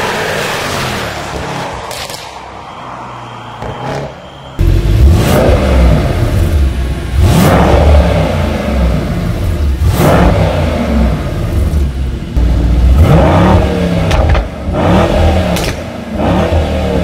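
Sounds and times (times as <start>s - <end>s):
car driving off: 3.4s - 17.0s
car engine idling and revving: 3.6s - 17.0s.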